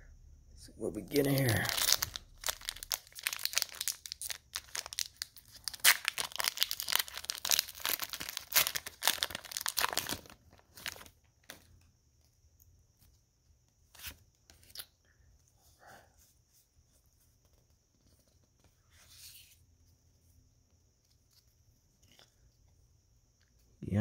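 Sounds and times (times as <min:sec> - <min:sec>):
cards rustling: 0:01.0 - 0:11.7
foil wrapper tearing and crinkling: 0:01.1 - 0:11.1.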